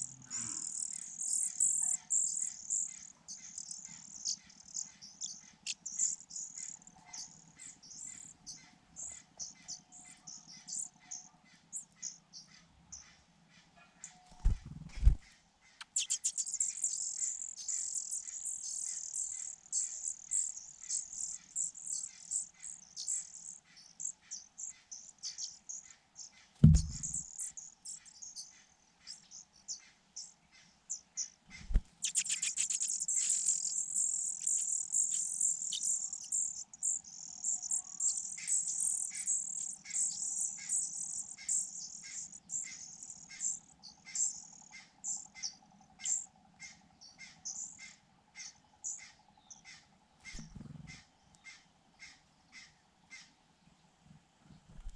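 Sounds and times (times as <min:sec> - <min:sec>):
nestlings squeaking: 0:15.8 - 0:24.1, 0:26.6 - 0:27.6, 0:31.5 - 0:44.4
dull thumps: 0:26.6 - 0:27.3.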